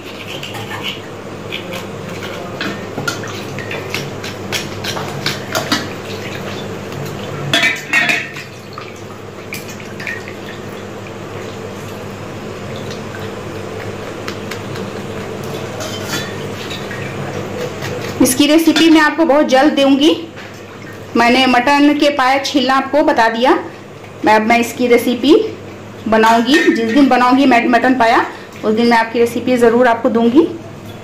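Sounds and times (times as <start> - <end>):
knife scraping skin: 0.0 - 2.6
water sounds: 0.0 - 22.3.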